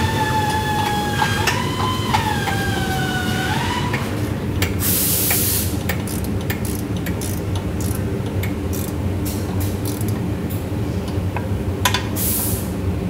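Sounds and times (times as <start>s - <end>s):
low machinery hum: 0.0s - 13.0s
sharp hiss of air: 4.8s - 5.8s, 12.2s - 12.8s
metallic clicks of hand tools: 5.9s - 9.0s, 9.8s - 10.2s.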